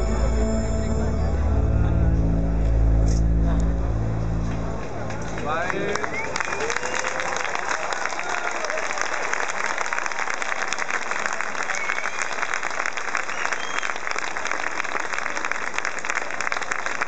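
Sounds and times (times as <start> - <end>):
crowd applauding: 4.4 - 17.0
short whistles: 6.0 - 7.1, 11.6 - 12.4, 13.2 - 14.0.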